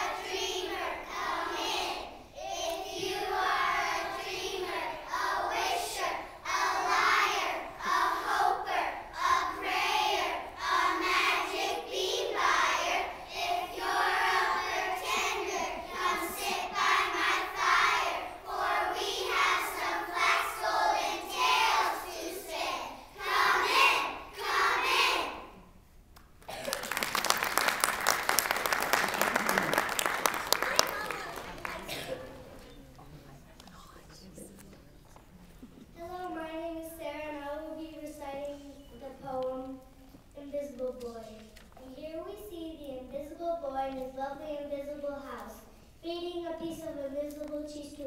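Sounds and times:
children reciting in unison: 0.0s - 25.6s.

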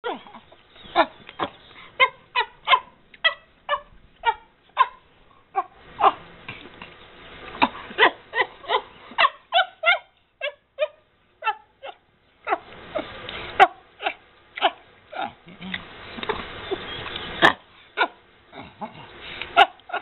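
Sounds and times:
chimpanzee squeaking: 0.0s - 5.0s.

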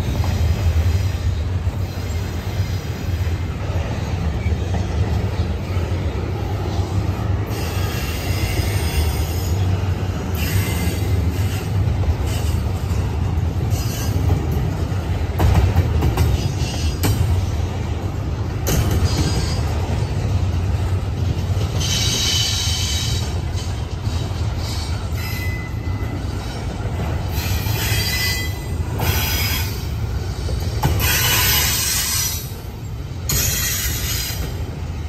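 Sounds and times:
train wheels rumbling on rails: 0.0s - 35.0s
clacks over rail joints: 10.4s - 25.2s, 25.8s - 32.6s
high wheel squeal: 24.6s - 26.6s, 27.3s - 29.9s, 30.9s - 32.6s.

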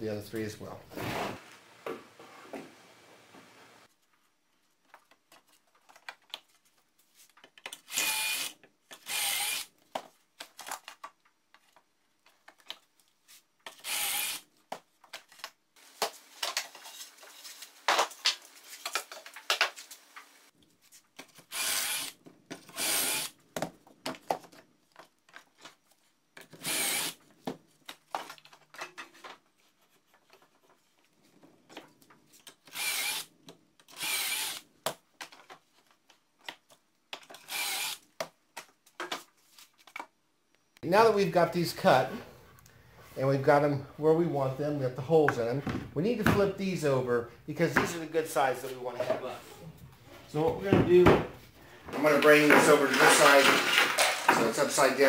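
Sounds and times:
cordless drill boring into wood: 7.9s - 9.7s, 13.8s - 14.4s, 21.5s - 22.1s, 22.7s - 23.3s, 26.6s - 27.2s, 32.7s - 33.3s, 33.9s - 34.6s, 37.5s - 38.0s
boards knocking and scraping: 50.4s - 54.8s.

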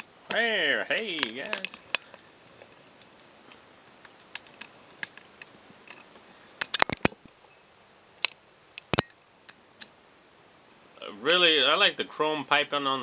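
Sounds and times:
plastic figure clicking: 1.2s - 2.2s.

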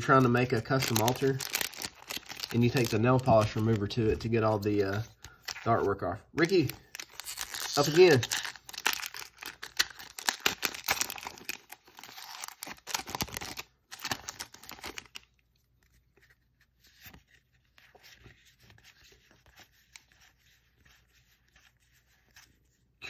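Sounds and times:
foil wrapper tearing and crinkling: 0.0s - 4.0s, 6.4s - 15.2s.

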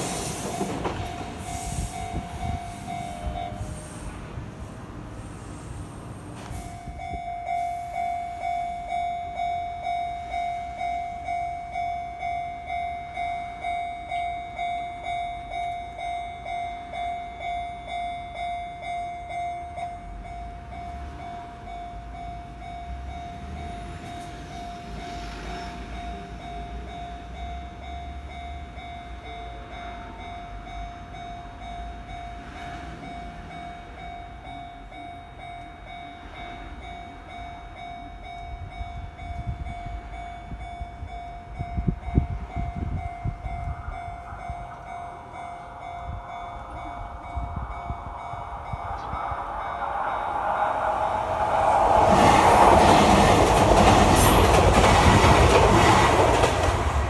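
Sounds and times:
train rumbling: 0.0s - 57.0s
level crossing bell ringing: 26.0s - 54.5s.

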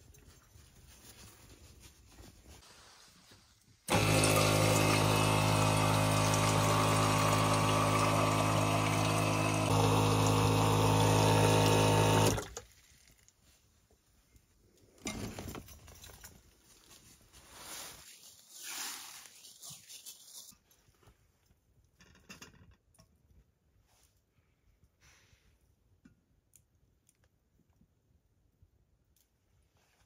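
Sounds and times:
faint handling sounds: 0.0s - 3.9s, 12.6s - 27.9s, 29.1s - 30.0s
water pouring into metal kettle: 3.9s - 12.4s
electric water pump humming: 3.9s - 12.6s.

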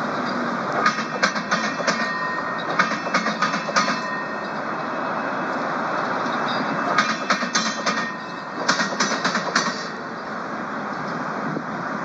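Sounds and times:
wheels clicking over track joints: 0.0s - 4.6s, 6.2s - 10.0s.

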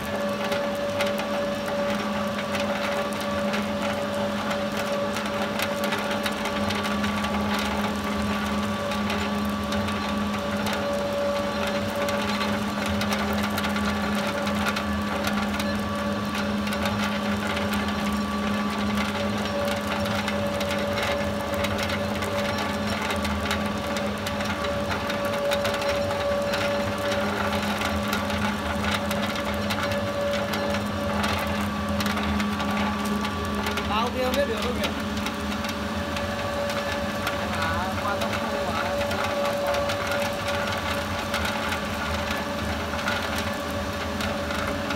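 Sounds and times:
pellet mill humming and clicking: 0.0s - 44.9s.

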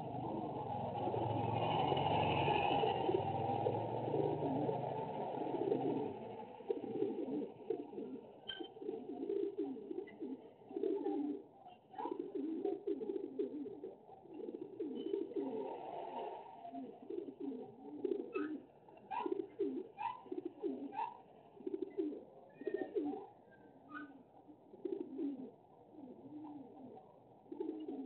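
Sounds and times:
motorbike engine passing: 0.0s - 6.7s
pigeons cooing: 0.0s - 28.0s.

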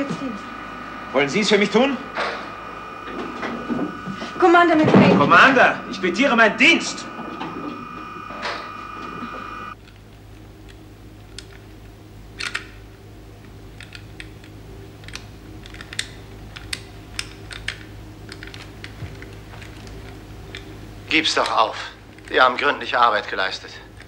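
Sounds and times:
high electronic tone: 0.0s - 9.8s
low electrical hum: 0.0s - 24.0s
keys and switches clicking: 13.8s - 20.7s.

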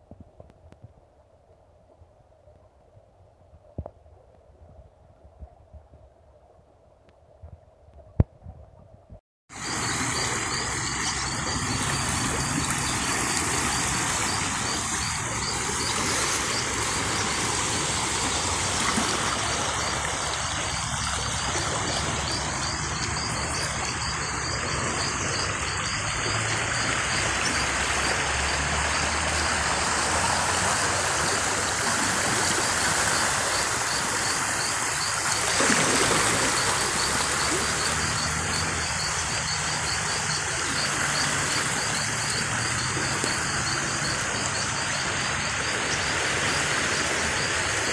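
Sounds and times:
flood stream rushing: 9.5s - 47.9s.

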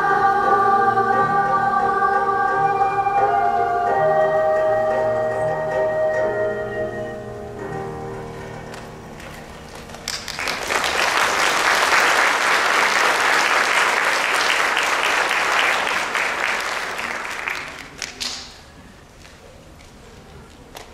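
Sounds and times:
audience applauding: 9.7s - 18.7s.

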